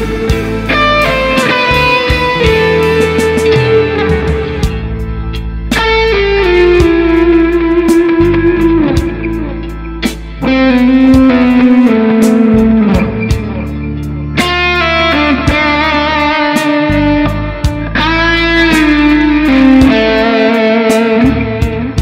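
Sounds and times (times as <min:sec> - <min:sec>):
backing rhythm with bass: 0:00.0 - 0:22.0
electric guitar blues lead: 0:00.0 - 0:22.0.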